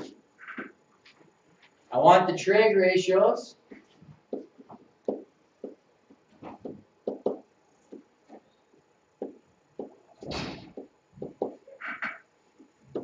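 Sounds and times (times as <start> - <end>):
pen tapping and scraping on board: 3.7 - 10.0, 10.7 - 13.0.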